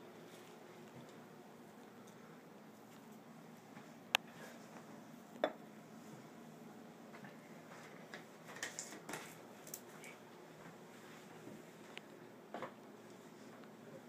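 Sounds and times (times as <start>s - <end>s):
dishes clinking: 5.4s - 5.6s.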